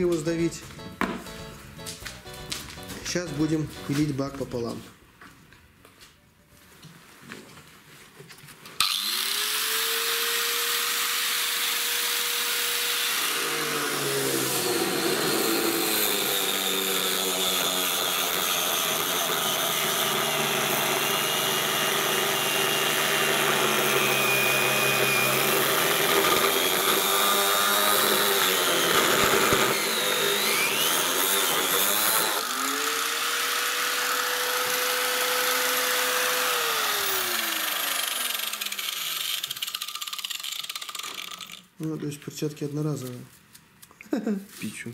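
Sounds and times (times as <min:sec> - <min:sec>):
angle grinder cutting plastic: 0:08.8 - 0:41.8.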